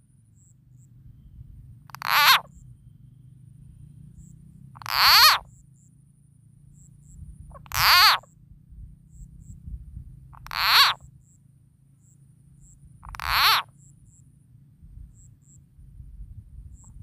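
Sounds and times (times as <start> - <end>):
frog calling: 1.9 - 2.6, 4.2 - 5.6, 6.8 - 8.4, 10.3 - 11.1, 12.6 - 14.2.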